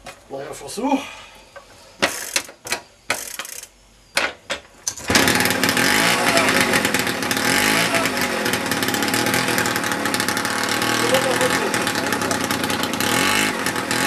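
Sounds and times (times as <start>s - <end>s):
moped engine starting and running: 4.9s - 14.0s.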